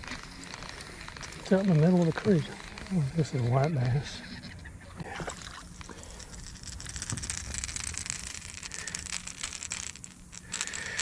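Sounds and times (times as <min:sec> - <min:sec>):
rapid clicking and rattling: 0:05.5 - 0:11.0.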